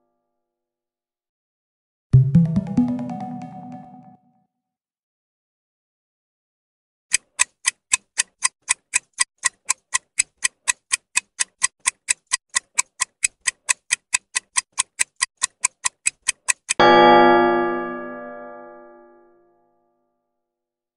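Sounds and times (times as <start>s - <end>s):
clock ticking: 7.1s - 16.8s.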